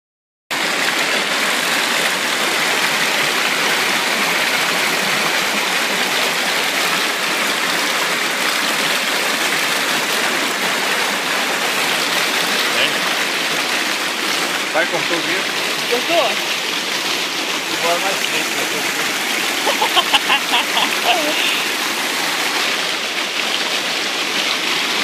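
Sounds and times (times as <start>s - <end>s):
stream water flowing over rocks: 0.5s - 25.0s.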